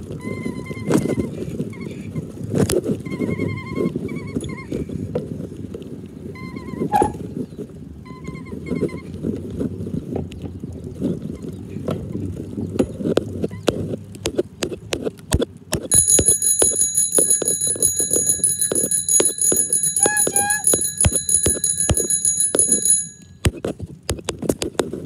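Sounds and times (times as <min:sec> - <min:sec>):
wheels clicking over track: 0:09.2 - 0:25.0
miniature train rumbling: 0:15.9 - 0:23.3
bell ringing: 0:15.9 - 0:23.4.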